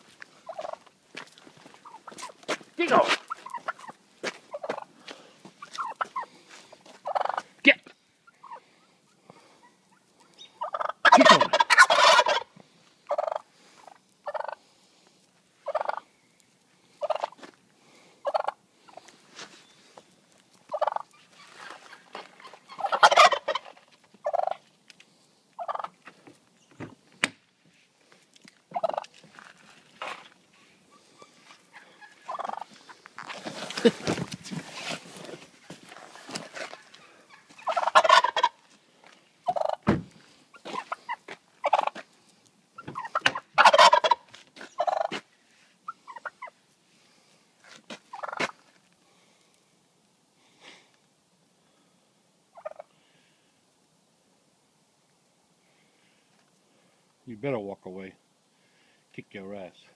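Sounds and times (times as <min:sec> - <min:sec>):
turkeys gobbling: 0:00.4 - 0:01.0, 0:01.7 - 0:14.6, 0:15.6 - 0:16.1, 0:17.0 - 0:17.4, 0:18.2 - 0:19.1, 0:20.6 - 0:24.8, 0:25.5 - 0:26.2, 0:28.7 - 0:29.2, 0:30.3 - 0:34.2, 0:34.8 - 0:38.7, 0:39.4 - 0:39.9, 0:40.5 - 0:42.1, 0:42.7 - 0:45.2, 0:45.8 - 0:46.6, 0:48.1 - 0:48.6, 0:52.5 - 0:53.0.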